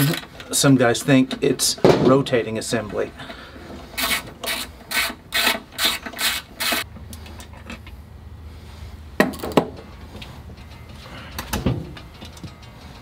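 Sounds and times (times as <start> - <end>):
hand ratchet rasping: 3.8 - 6.9.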